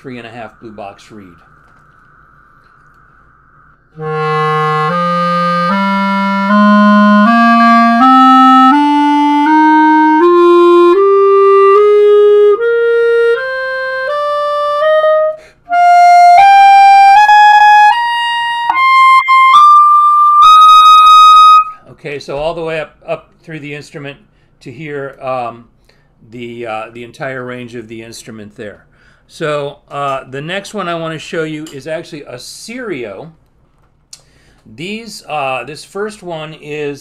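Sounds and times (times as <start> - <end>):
clarinet playing ascending scale: 4.0 - 21.8.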